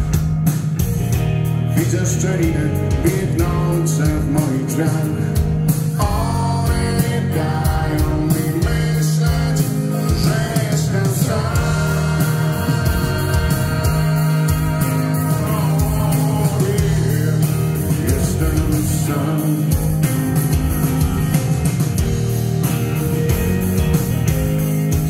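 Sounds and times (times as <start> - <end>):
bass guitar: 0.0 - 25.0
electric guitars: 0.0 - 25.0
steady drum beat: 0.0 - 25.0
man singing: 1.7 - 21.3.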